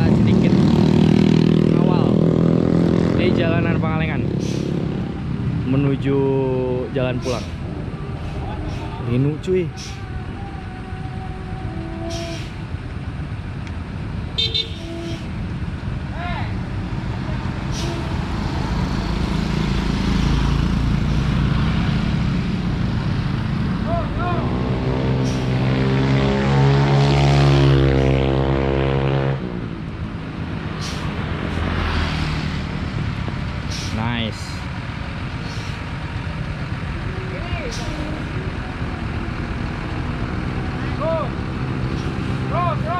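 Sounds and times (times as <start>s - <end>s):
bus engine rumble: 0.0s - 42.9s
road noise: 0.0s - 42.9s
compressed air hiss: 4.3s - 4.8s, 17.6s - 18.4s, 30.6s - 31.7s, 33.6s - 34.0s, 35.4s - 36.0s.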